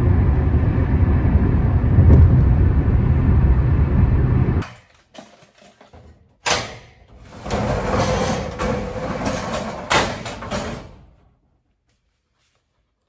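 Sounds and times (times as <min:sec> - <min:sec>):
metal door clanking: 0:04.6 - 0:11.2
roll-up door rattling rumble: 0:04.7 - 0:11.2.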